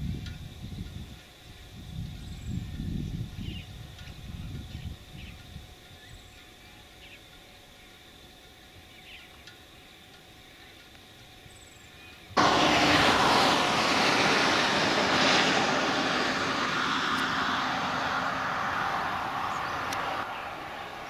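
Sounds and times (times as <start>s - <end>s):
diesel locomotive engine roar: 12.3s - 21.0s.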